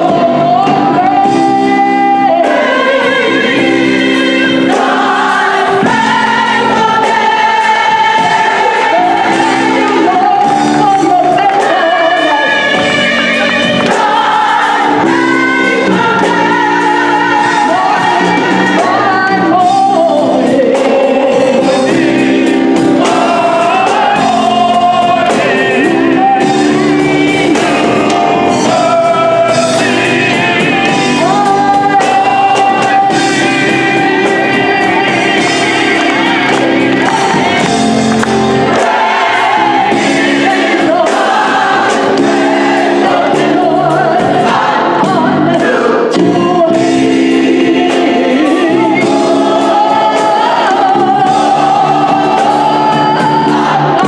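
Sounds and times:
electric bass guitar: 0.0s - 54.0s
gospel choir singing: 0.0s - 54.0s
lead singer: 0.0s - 54.0s.

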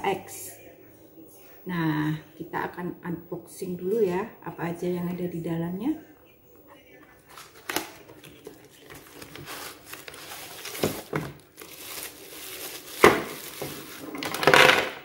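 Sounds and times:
plastic packaging crinkling: 7.2s - 15.0s.

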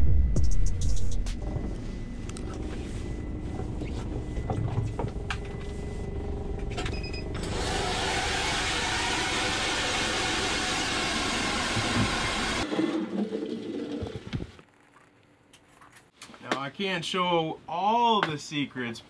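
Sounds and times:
low rumble: 0.0s - 7.3s
ice auger drilling: 7.4s - 13.2s.

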